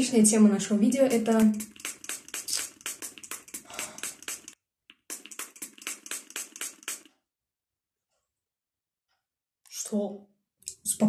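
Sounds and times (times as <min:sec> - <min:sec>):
rapid sharp clicks: 0:01.0 - 0:07.2.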